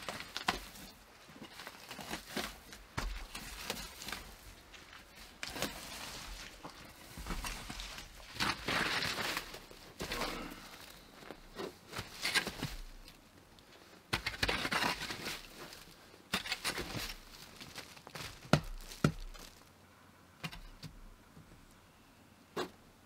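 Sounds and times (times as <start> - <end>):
tool scraping through soil: 5.2 - 13.2, 14.1 - 19.5.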